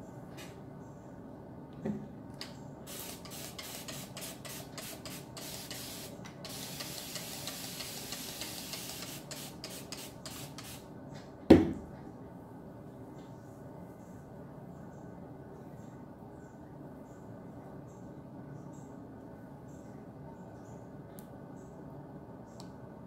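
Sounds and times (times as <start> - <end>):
loud knock: 11.5 - 11.8.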